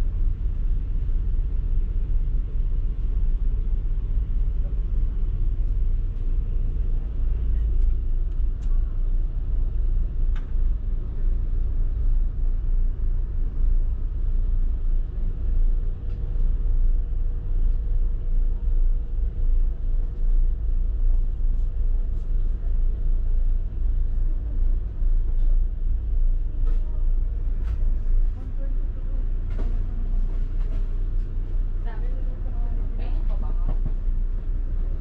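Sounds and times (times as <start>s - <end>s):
faint hum: 0.0s - 35.0s
ferry engines rumbling: 0.0s - 35.0s.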